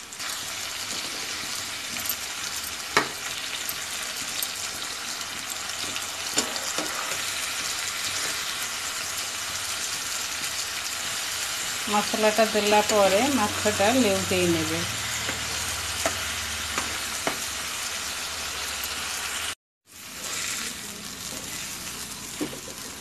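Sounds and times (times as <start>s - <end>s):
fish sizzling in oil: 0.0s - 23.0s
metal spatula scraping pan: 6.4s - 8.5s.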